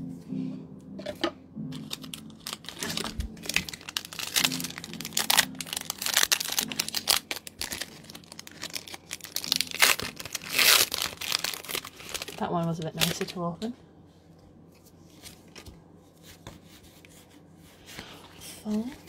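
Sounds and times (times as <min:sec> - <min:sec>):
foil wrapper crinkling and tearing: 0:01.7 - 0:13.4.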